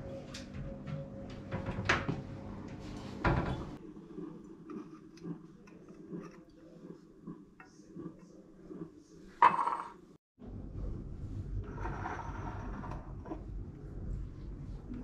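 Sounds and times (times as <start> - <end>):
ceramic mugs clattering on countertop: 9.4 - 10.0.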